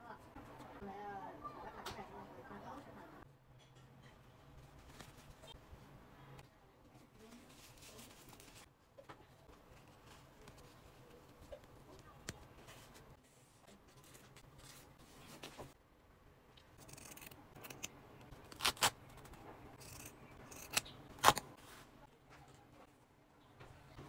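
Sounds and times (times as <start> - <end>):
scissors snipping face mask: 16.8 - 21.5.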